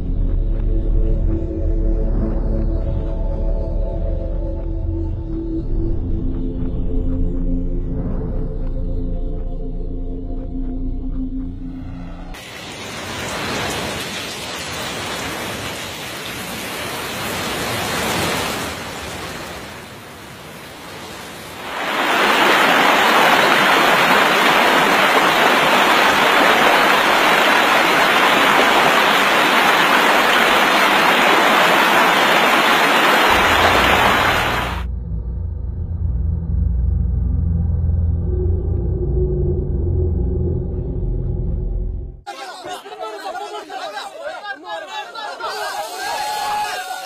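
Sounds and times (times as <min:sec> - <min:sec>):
rushing water: 0:12.4 - 0:34.9.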